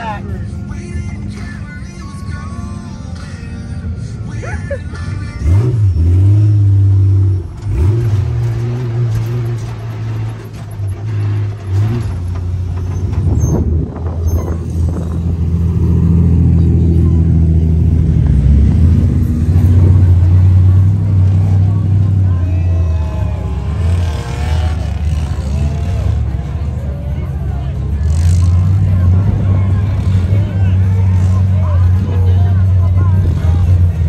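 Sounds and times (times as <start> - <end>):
off-road vehicle engines droning: 0.0 - 34.0.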